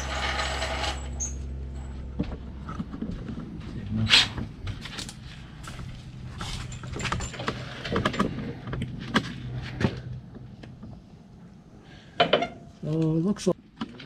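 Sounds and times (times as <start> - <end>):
steady low hum: 0.0 - 13.8
metallic clinks and knocks: 5.6 - 9.3.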